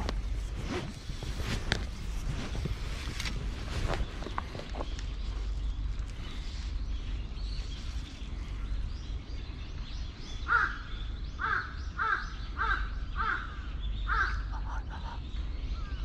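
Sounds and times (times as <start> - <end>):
crow cawing: 10.5 - 14.5.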